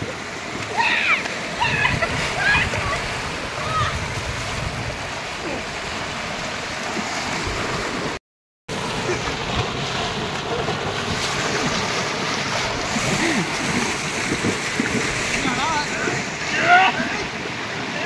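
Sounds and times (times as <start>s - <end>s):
floodwater rushing: 0.0s - 18.0s
people wading through water: 0.0s - 18.0s.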